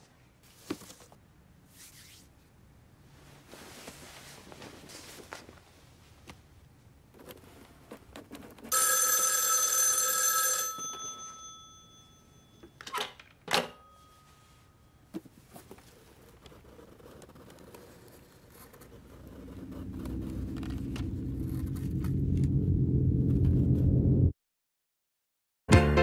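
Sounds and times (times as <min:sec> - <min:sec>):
telephone bell ringing: 0:08.7 - 0:12.8, 0:13.7 - 0:14.9.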